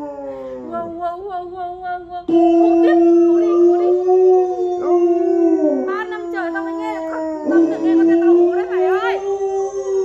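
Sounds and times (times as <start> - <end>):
recorded wolf howl: 0.0 - 1.1, 2.3 - 10.0
dog howling: 2.3 - 10.0.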